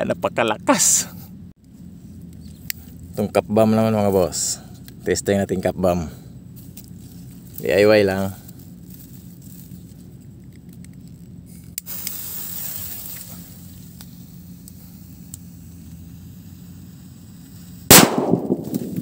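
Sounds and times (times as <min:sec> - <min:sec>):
firecracker fuse hissing: 0:11.4 - 0:19.0
loud firecracker bang: 0:17.9 - 0:19.0.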